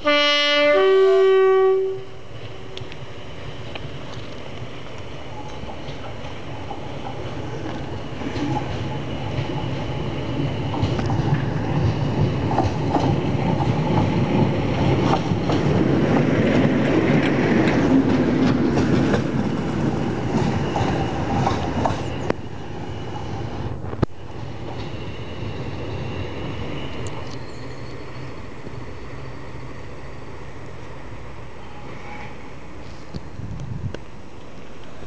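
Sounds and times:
diesel locomotive passing: 0:00.0 - 0:35.0
wheels clicking over rail joints: 0:03.6 - 0:22.4.

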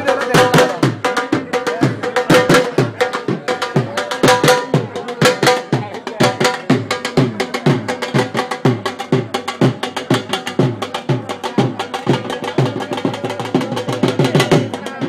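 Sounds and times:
deep drum strokes: 0:00.0 - 0:15.0.

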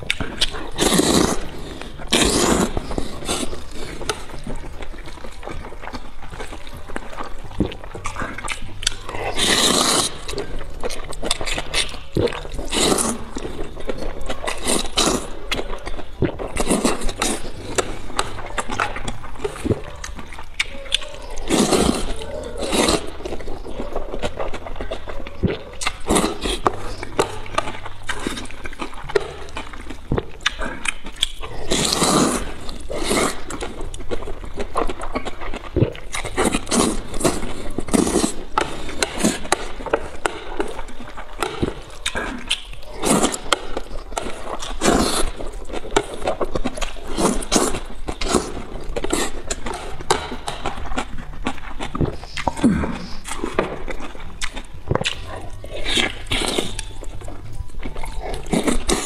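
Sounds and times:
wet chewing: 0:00.0 - 0:59.0
person slurping noodles: 0:00.1 - 0:04.6, 0:07.6 - 0:10.6, 0:11.2 - 0:15.5, 0:16.2 - 0:19.8, 0:21.2 - 0:23.8, 0:25.8 - 0:29.6, 0:30.4 - 0:33.8, 0:35.3 - 0:40.8, 0:41.4 - 0:51.1.

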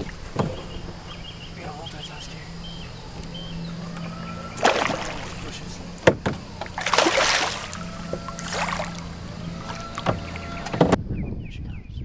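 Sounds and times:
water splashing: 0:00.0 - 0:11.0
fish thrashing at water surface: 0:03.9 - 0:10.7.

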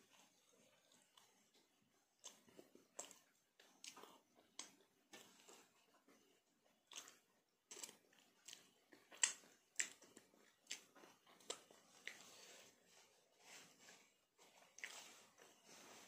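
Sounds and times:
wet mouth clicks and lip smacks: 0:02.2 - 0:03.2, 0:06.9 - 0:12.2.

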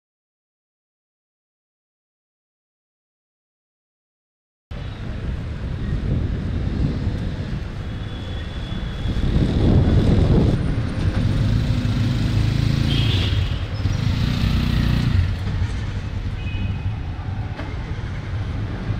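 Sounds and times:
vehicle engine rumbling: 0:04.7 - 0:18.9.

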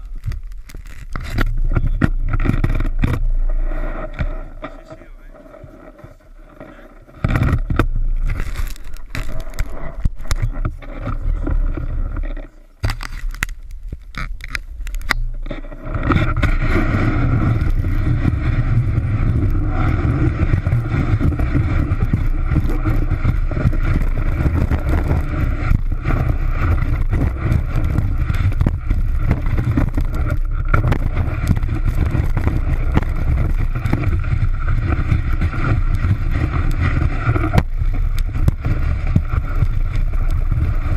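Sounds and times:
snowboard scraping snow: 0:01.1 - 0:12.8, 0:15.5 - 0:40.9
wind on microphone: 0:13.7 - 0:40.9.

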